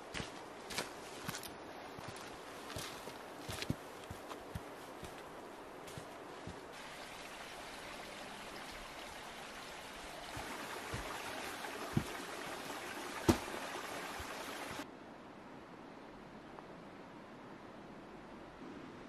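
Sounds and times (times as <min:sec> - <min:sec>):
stream trickling: 0:05.9 - 0:14.8.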